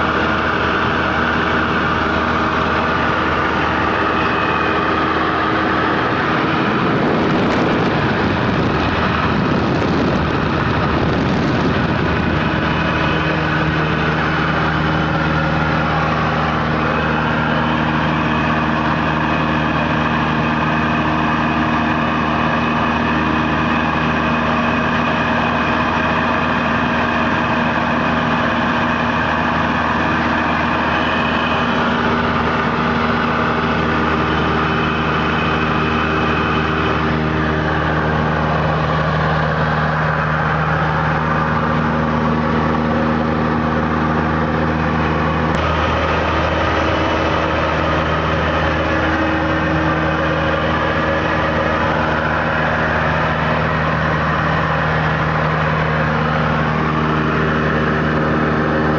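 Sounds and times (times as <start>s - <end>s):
aircraft engine and propeller droning: 0.0s - 58.9s
air rushing over airframe: 2.6s - 19.4s.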